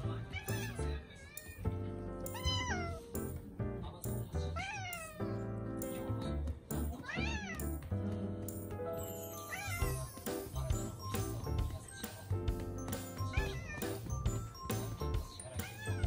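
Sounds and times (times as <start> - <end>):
background music: 0.0 - 16.0
cat meowing: 0.3 - 1.6, 2.3 - 3.1, 4.5 - 5.4, 7.0 - 7.7, 9.5 - 10.0, 13.3 - 14.0, 15.5 - 16.0.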